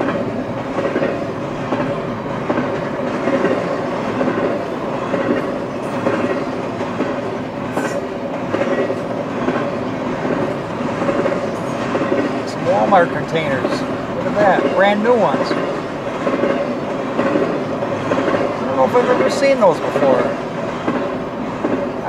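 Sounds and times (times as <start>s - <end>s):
freight train passing: 0.0s - 22.0s.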